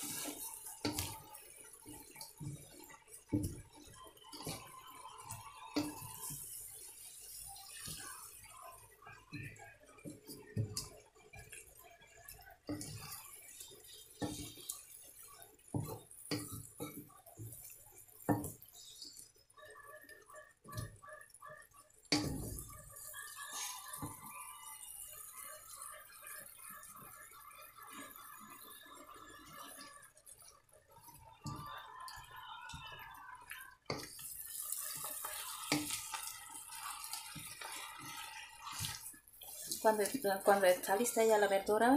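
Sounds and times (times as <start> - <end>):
spatula scraping a pan: 0.0 - 4.7, 10.1 - 19.2, 22.1 - 24.2, 33.9 - 40.1
spatula scraping and knocking pan: 0.0 - 4.7, 12.7 - 19.0
vegetables sizzling in a wok: 0.0 - 21.0, 22.0 - 41.9.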